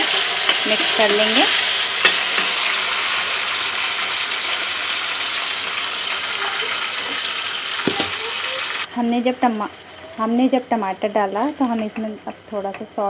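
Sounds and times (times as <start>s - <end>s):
onions and tomatoes sizzling in oil: 0.0s - 13.0s.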